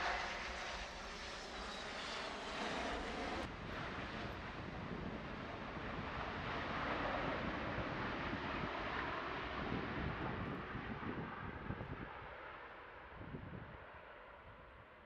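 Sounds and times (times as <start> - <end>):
jet engines roaring: 0.0 - 10.6.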